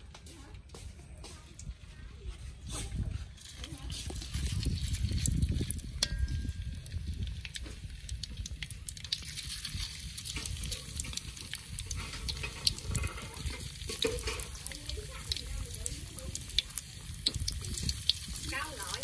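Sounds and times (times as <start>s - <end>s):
tofu sizzling in hot oil: 3.4s - 19.0s
low rumble: 4.0s - 9.7s.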